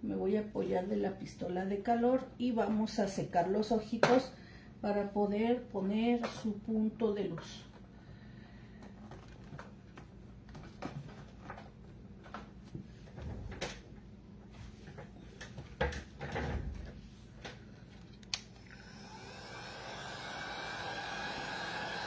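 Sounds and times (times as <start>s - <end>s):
heat gun blowing: 18.6s - 22.0s.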